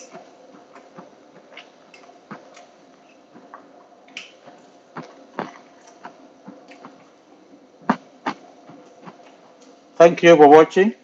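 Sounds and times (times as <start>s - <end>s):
person eating and chewing: 0.0s - 7.1s.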